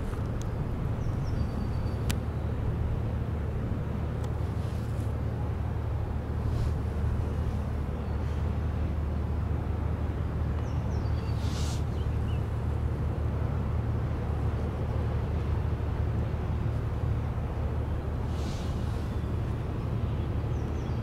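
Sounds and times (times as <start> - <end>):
ship low drone: 0.0 - 21.0
short high hiss: 11.4 - 11.9, 18.3 - 19.0.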